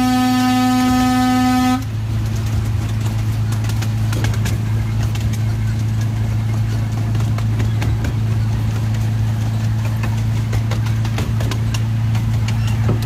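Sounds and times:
miniature train engine hum: 0.0 - 13.0
wheels clacking on rails: 0.0 - 13.0.

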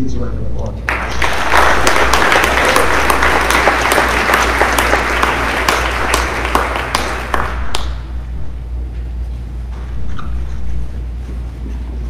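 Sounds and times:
steady low hum: 0.0 - 12.0
audience applauding: 0.9 - 8.4.

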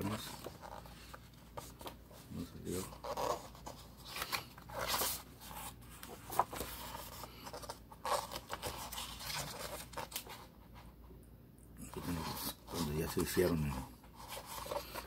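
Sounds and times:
record sleeves rustling: 0.0 - 11.0, 11.9 - 15.0.

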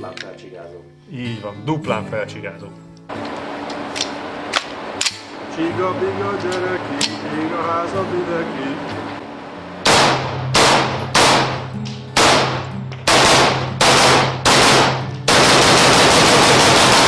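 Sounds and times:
rapid string of rifle shots: 9.8 - 17.0
rifle shots echoing indoors: 9.8 - 17.0.

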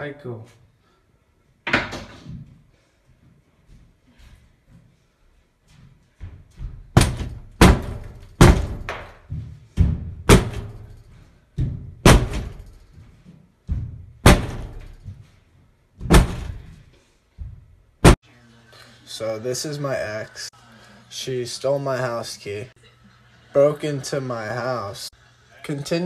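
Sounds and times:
heavy blows on a door: 6.8 - 11.0, 11.6 - 12.7, 13.7 - 15.2, 16.0 - 16.9.

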